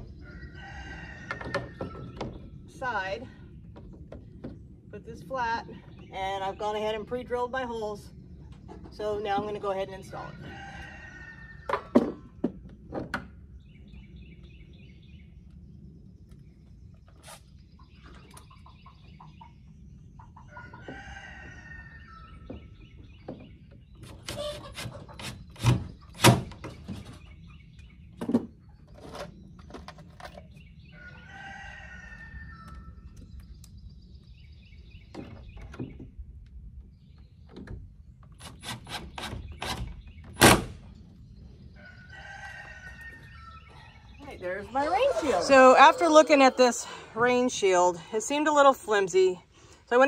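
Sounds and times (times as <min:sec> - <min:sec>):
rooster crowing: 0:00.2 - 0:02.0, 0:31.0 - 0:32.8, 0:41.8 - 0:43.8, 0:44.8 - 0:47.1
small birds chirping: 0:13.4 - 0:50.0.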